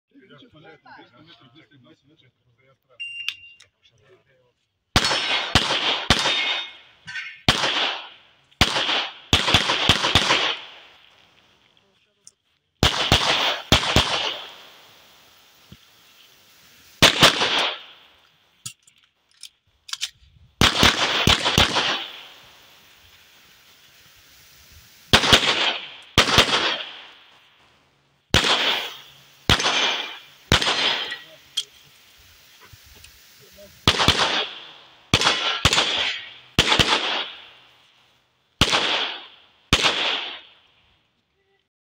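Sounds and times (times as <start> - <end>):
pistol shots with echo: 5.0 - 6.8, 7.4 - 10.9, 12.8 - 14.7, 17.0 - 18.0, 20.6 - 22.3, 25.1 - 27.2, 28.4 - 31.4, 33.9 - 37.5, 38.6 - 40.5.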